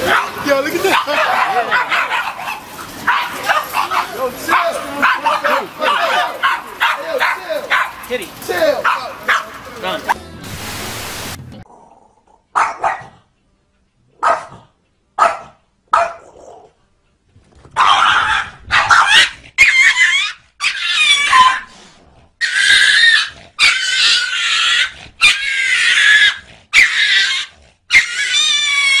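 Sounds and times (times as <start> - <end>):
cat and dog fighting cries: 0.0 - 8.0, 17.8 - 21.7, 22.4 - 29.0.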